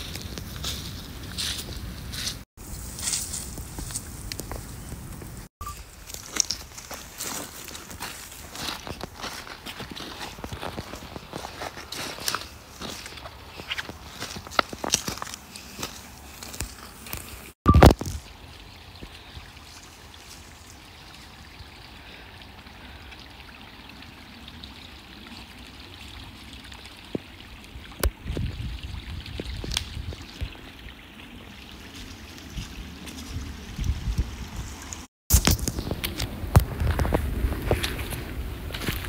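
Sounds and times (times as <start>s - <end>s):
footsteps crunching dry leaves: 0.0s - 18.1s, 31.7s - 39.0s
stream trickling: 5.6s - 39.0s.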